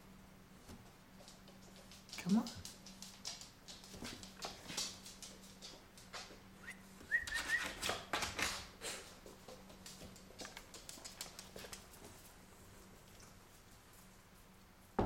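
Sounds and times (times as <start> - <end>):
claws on hardwood floor: 0.7 - 12.4.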